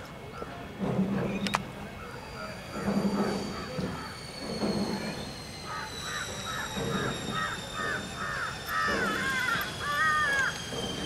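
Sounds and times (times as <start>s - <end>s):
bird calling harshly: 5.7s - 10.6s.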